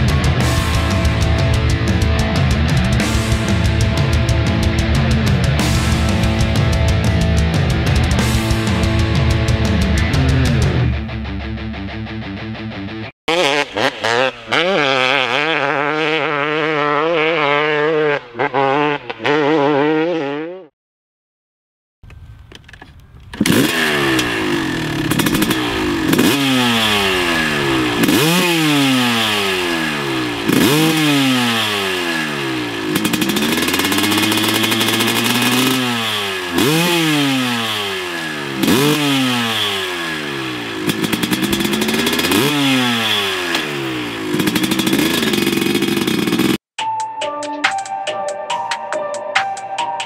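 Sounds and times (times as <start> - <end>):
motorcycle engine revving: 0.0 - 11.1, 13.3 - 20.7, 23.3 - 46.6.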